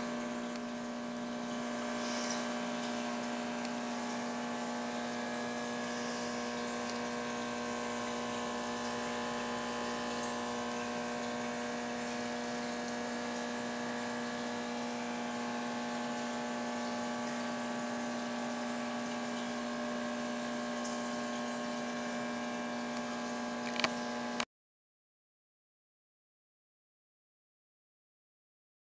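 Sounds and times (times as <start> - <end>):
watery hiss: 0.0 - 23.6
aquarium pump humming: 0.0 - 24.5
sharp click: 23.0 - 24.0.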